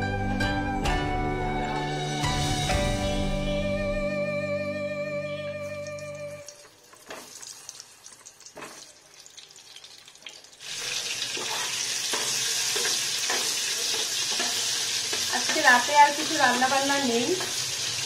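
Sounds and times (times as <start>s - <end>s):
food sizzling in hot oil: 5.9s - 18.0s.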